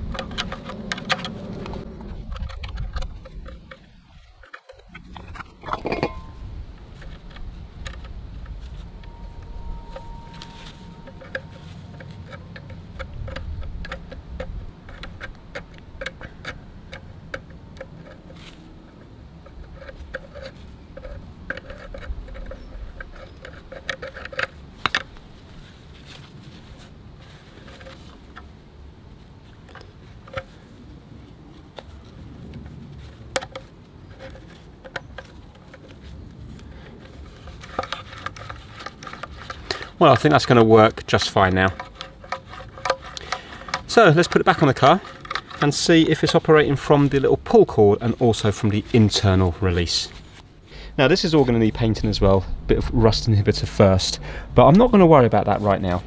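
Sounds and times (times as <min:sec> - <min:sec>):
metal hinge clicking and creaking: 0:00.0 - 0:18.4, 0:19.4 - 0:25.2, 0:37.0 - 0:50.1.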